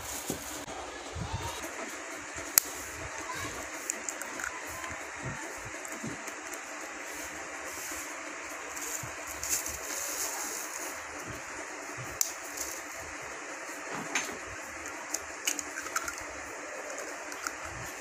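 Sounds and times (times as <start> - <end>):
background hiss: 0.0 - 18.0
egg cracking on metal bowl: 15.1 - 16.2.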